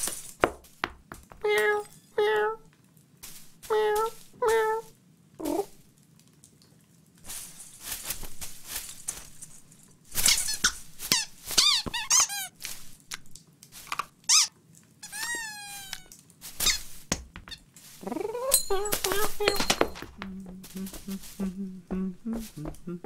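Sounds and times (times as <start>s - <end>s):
rustling of branches: 3.2s - 5.9s, 7.2s - 14.1s, 15.0s - 23.0s
high falling squeaks and chirps: 14.3s - 16.9s
cartoon cat chirrup: 15.1s - 16.1s.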